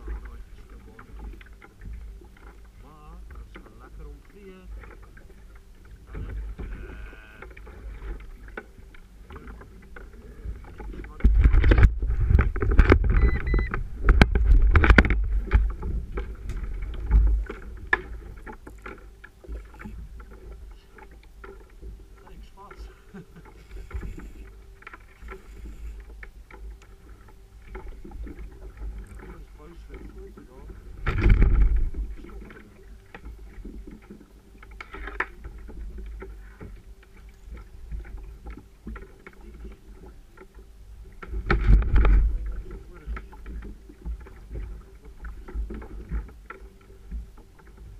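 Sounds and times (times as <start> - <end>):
small ticks and knocks: 0.0 - 47.9
water lapping against hull: 0.0 - 47.9
water rush: 0.0 - 47.9
wind on microphone: 10.2 - 18.5, 30.8 - 32.5.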